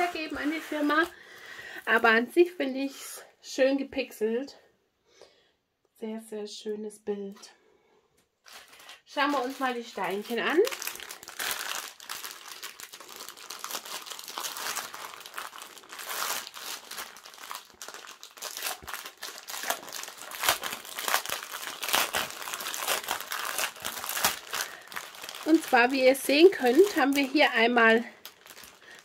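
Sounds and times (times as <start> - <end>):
plastic bags crinkling: 0.0 - 1.6, 8.4 - 29.0.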